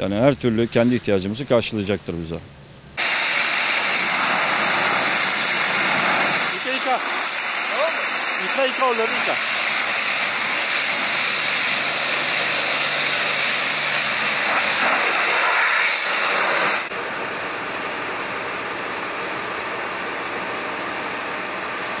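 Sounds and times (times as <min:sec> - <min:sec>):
pressure washer spraying water: 0:03.0 - 0:16.9.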